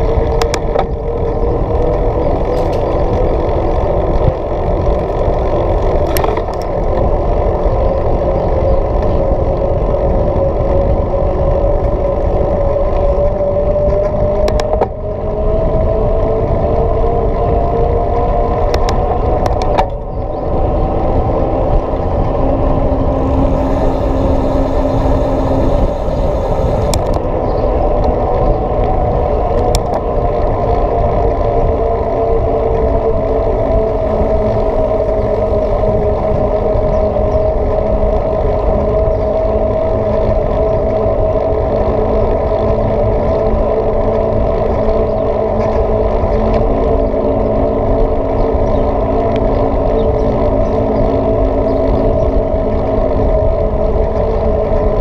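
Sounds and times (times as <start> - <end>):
bike tyre road rumble: 0.0 - 55.0
wind noise: 0.0 - 55.0
humming tone rising and falling: 13.2 - 37.4.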